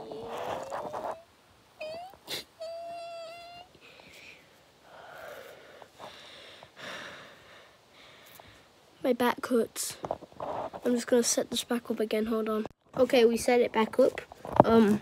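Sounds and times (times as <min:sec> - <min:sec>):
boy humming through cloth: 0:00.0 - 0:05.6.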